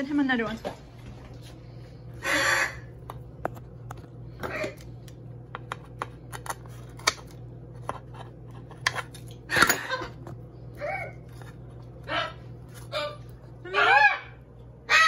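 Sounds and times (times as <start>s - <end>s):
parrot squawking: 2.2s - 2.9s, 12.0s - 15.0s.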